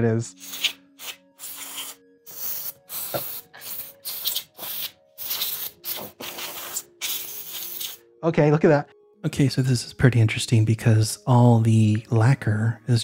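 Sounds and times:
canned air hissing blasts: 0.4s - 8.0s.

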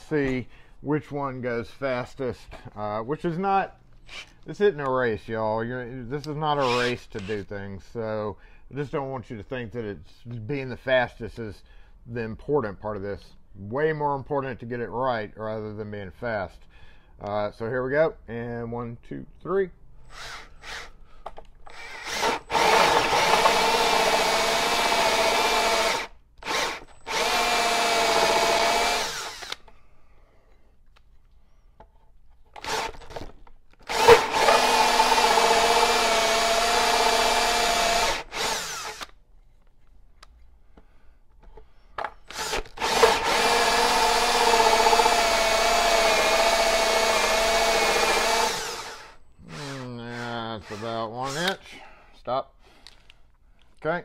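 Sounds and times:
cordless drill hole saw into wood: 4.0s - 4.4s, 6.5s - 7.4s, 20.0s - 21.0s, 21.6s - 29.8s, 32.6s - 39.2s, 42.2s - 51.7s.

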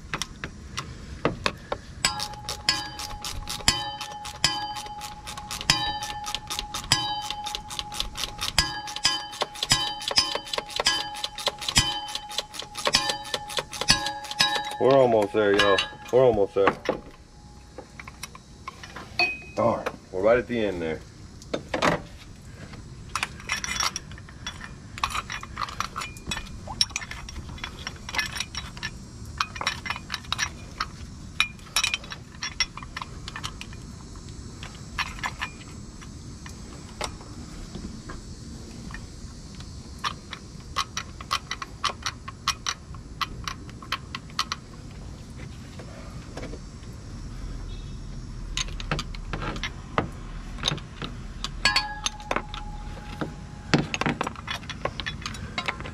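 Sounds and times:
ratchet and socket clicking: 2.1s - 16.2s, 40.0s - 44.6s.

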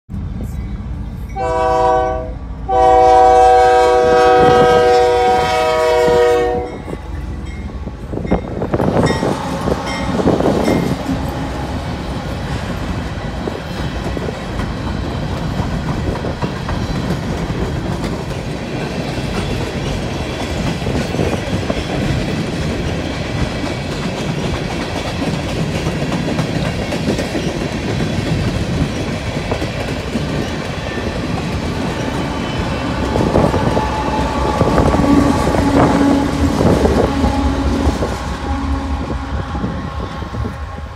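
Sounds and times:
locomotive engines rumbling: 0.1s - 40.9s
train cars clickety-clack on rails: 0.1s - 40.9s
locomotive air horn: 1.4s - 7.0s, 32.8s - 40.9s.

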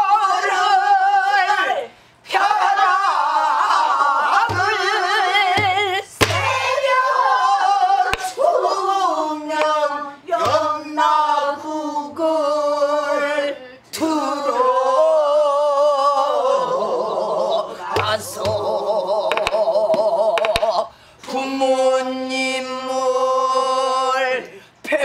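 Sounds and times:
woman singing in wavering voice: 0.0s - 25.0s
low barrel drum beats: 4.4s - 5.0s, 5.6s - 6.7s, 18.0s - 18.7s
stick clicking on drum rim: 19.3s - 19.6s, 20.4s - 20.6s.

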